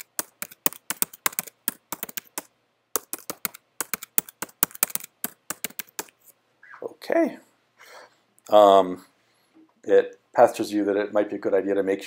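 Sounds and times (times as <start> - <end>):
keyboard typing clicks: 0.0 - 6.2.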